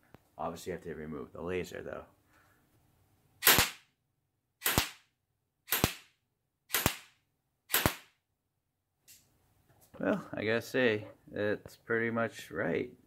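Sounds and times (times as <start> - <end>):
airsoft gun shots: 3.4 - 3.9, 4.6 - 5.1, 5.7 - 8.2.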